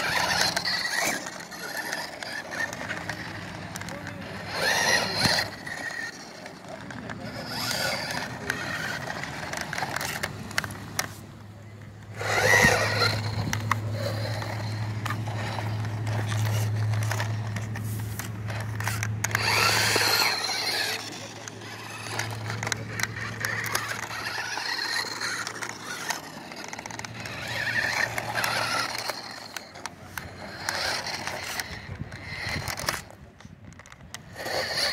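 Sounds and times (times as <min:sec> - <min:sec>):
toy car motor: 0:00.0 - 0:34.9.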